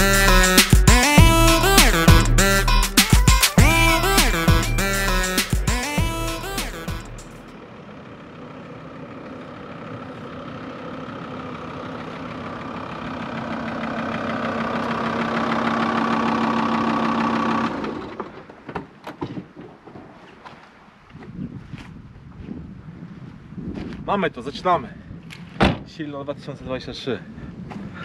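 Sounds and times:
music: 0:00.0 - 0:07.5.

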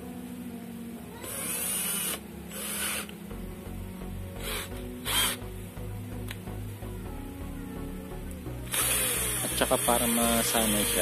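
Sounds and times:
cordless drill motor bursts: 0:01.2 - 0:03.1, 0:04.4 - 0:05.4, 0:08.7 - 0:11.0.

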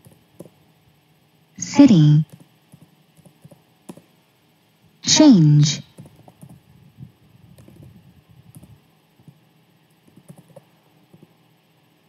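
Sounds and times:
computer keyboard keystrokes: 0:02.3 - 0:04.1, 0:05.9 - 0:06.6, 0:07.6 - 0:07.9, 0:10.0 - 0:11.3.

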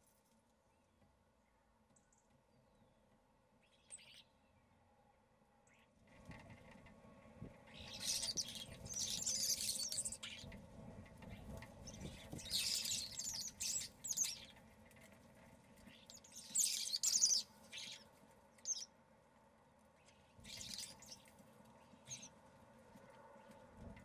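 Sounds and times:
starlings chattering: 0:07.8 - 0:10.5, 0:11.9 - 0:14.5, 0:16.0 - 0:18.0, 0:20.5 - 0:21.2.

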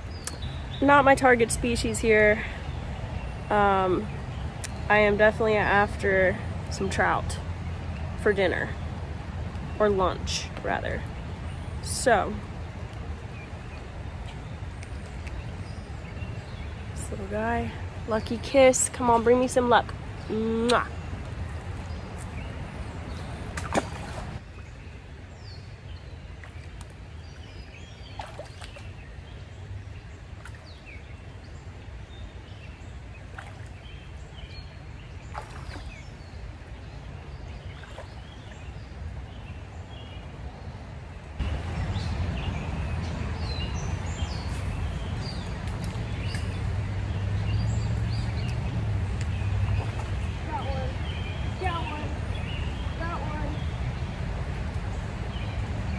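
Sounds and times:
birds chirping: 0:00.0 - 0:55.9
splashes of person wading: 0:23.2 - 0:24.4, 0:28.0 - 0:29.0, 0:33.2 - 0:34.4, 0:35.2 - 0:36.2, 0:37.6 - 0:38.7.

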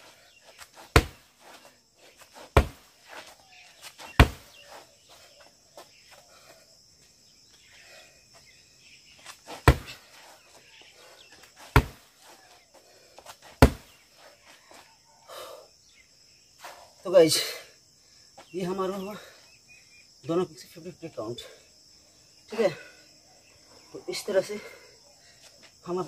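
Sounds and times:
foot shuffles: 0:00.0 - 0:07.2, 0:09.2 - 0:14.9
insects chirring: 0:00.0 - 0:26.0
kicks thudding on a pad: 0:00.9 - 0:01.3, 0:02.5 - 0:02.9, 0:04.1 - 0:04.6, 0:09.6 - 0:10.0, 0:11.7 - 0:12.1, 0:13.6 - 0:13.9.

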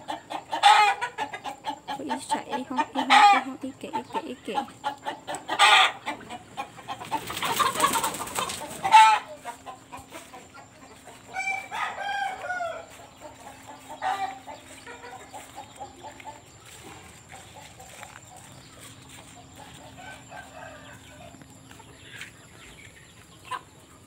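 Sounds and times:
chickens clucking: 0:00.0 - 0:24.0
rooster crowing: 0:11.3 - 0:13.0, 0:19.7 - 0:21.4.

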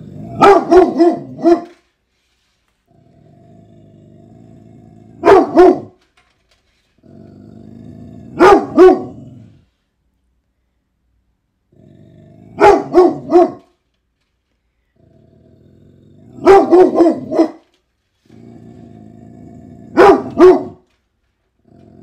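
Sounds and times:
dog growling: 0:00.0 - 0:01.4, 0:02.9 - 0:05.6, 0:07.0 - 0:09.7, 0:11.7 - 0:13.4, 0:14.9 - 0:17.4, 0:18.2 - 0:20.7, 0:21.6 - 0:22.0
dog barking: 0:00.3 - 0:01.8, 0:05.2 - 0:06.0, 0:08.4 - 0:09.3, 0:12.6 - 0:13.7, 0:16.4 - 0:17.7, 0:19.9 - 0:20.8.

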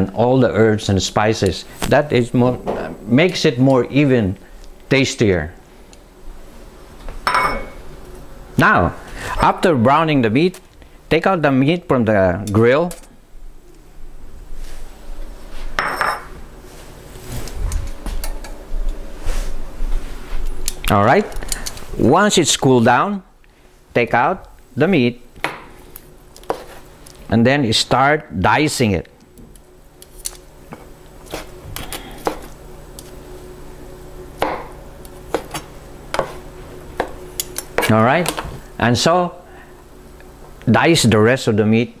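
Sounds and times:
knife chopping on cutting board: 0:26.5 - 0:26.8, 0:35.3 - 0:36.4.

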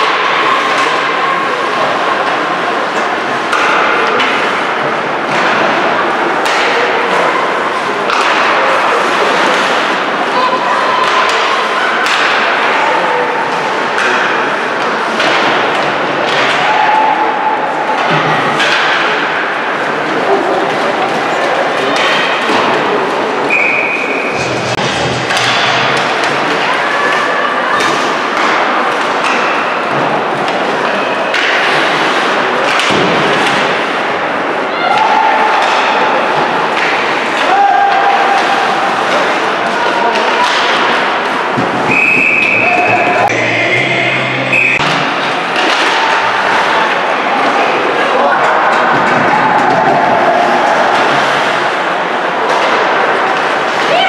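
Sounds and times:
skating and arena noise: 0:00.0 - 0:54.0
hockey sticks and puck knocking: 0:08.0 - 0:10.0, 0:11.0 - 0:12.8, 0:18.0 - 0:19.4, 0:24.4 - 0:26.6, 0:34.9 - 0:43.6, 0:48.4 - 0:51.5
sharp knocks from sticks and puck: 0:08.1 - 0:08.7, 0:12.0 - 0:12.7, 0:18.0 - 0:19.4, 0:24.8 - 0:26.4, 0:40.2 - 0:43.5, 0:44.7 - 0:46.7.

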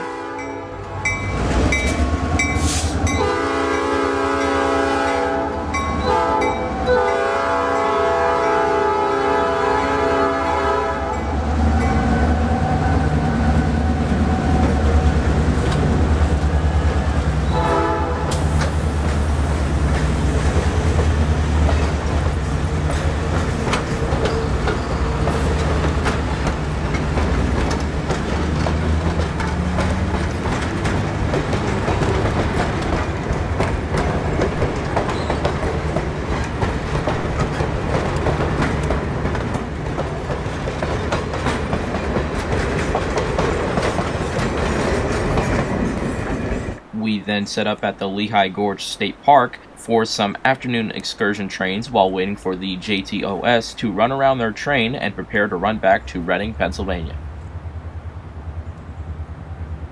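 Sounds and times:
locomotive air horn blasts: 0:00.0 - 0:01.1, 0:02.6 - 0:11.4, 0:17.4 - 0:18.6
diesel locomotives rumbling: 0:00.0 - 0:59.9
train wheels clicking over rail joints: 0:11.7 - 0:17.6, 0:18.2 - 0:46.9.

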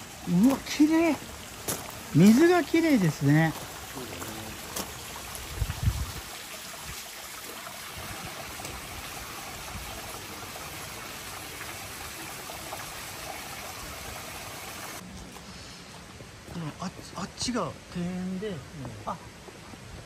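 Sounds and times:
stream water running: 0:00.0 - 0:20.0.

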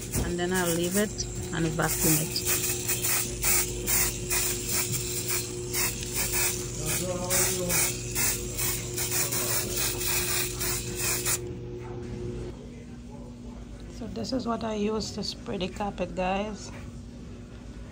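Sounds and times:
aerosol spray bursts: 0:01.9 - 0:11.4.

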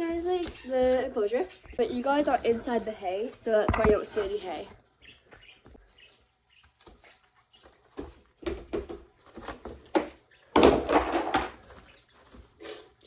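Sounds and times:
knocks and rustling: 0:03.5 - 0:04.4, 0:07.9 - 0:12.5.

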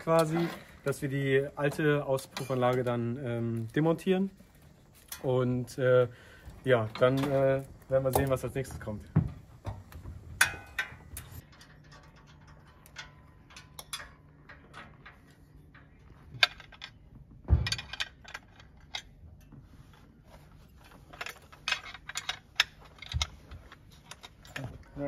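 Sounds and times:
metallic knocks: 0:06.9 - 0:18.8
wrench clinking on metal pipe: 0:10.4 - 0:17.0.

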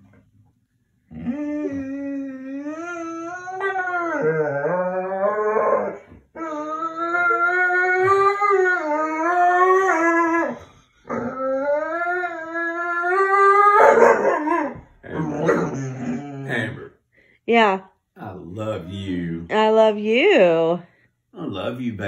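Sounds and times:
dog howling: 0:01.1 - 0:16.6.

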